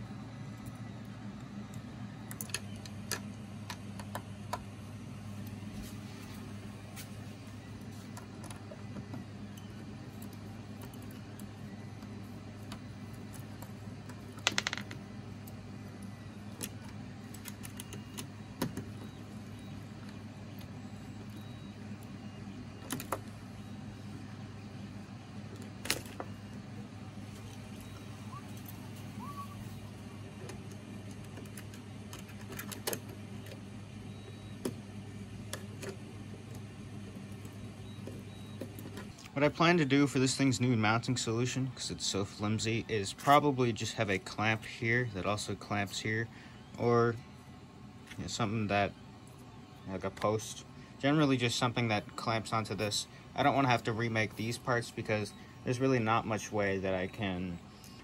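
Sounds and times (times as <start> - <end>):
steady low hum: 0.0 - 58.0.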